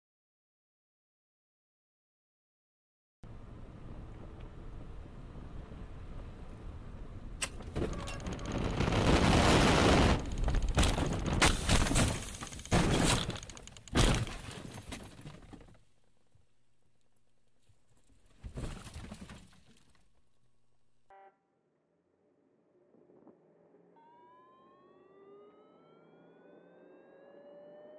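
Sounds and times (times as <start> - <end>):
heavy crashes: 7.6 - 15.6
debris rattling: 7.6 - 15.9.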